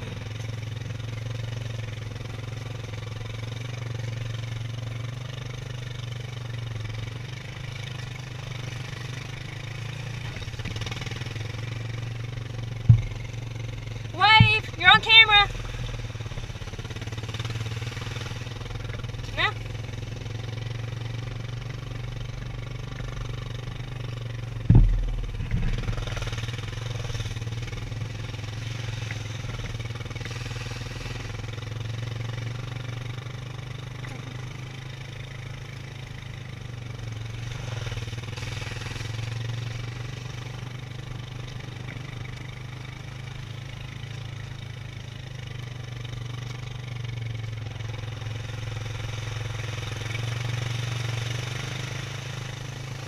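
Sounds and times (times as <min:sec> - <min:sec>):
atv engine running: 0:00.0 - 0:53.0
sharp thump: 0:12.8 - 0:13.4, 0:24.6 - 0:26.5.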